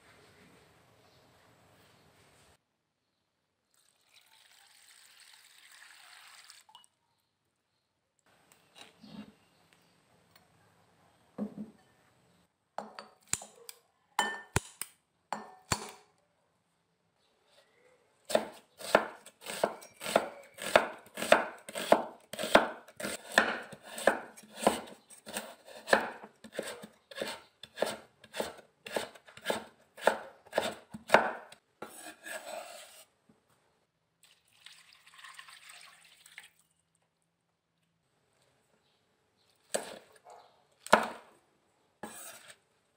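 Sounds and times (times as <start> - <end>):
cleaver chopping on cutting board: 18.3 - 31.5
short scrape: 31.8 - 33.1, 42.0 - 42.6.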